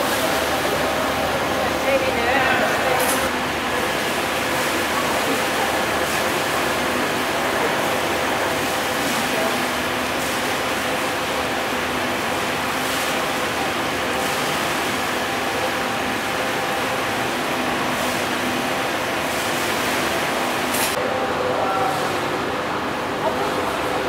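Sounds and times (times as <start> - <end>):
faint machinery hum: 0.0 - 24.0.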